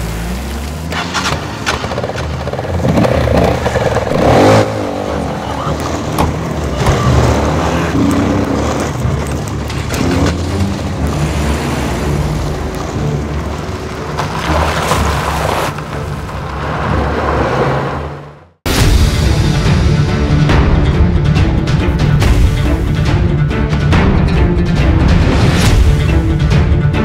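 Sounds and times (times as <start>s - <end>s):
dirt bike engine revving: 0.0s - 12.4s
four-by-four engines running: 0.0s - 17.0s.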